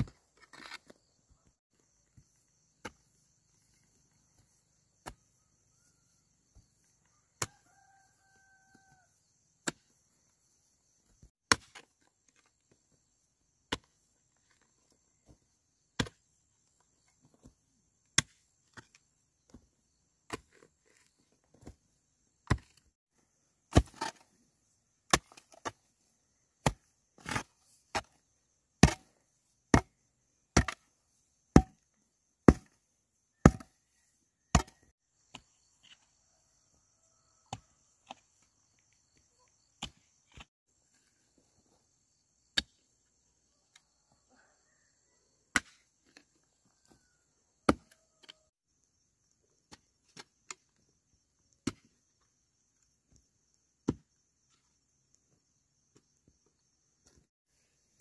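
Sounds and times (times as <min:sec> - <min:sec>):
sharp chopping strikes: 0:33.4 - 0:33.7, 0:34.5 - 0:34.8.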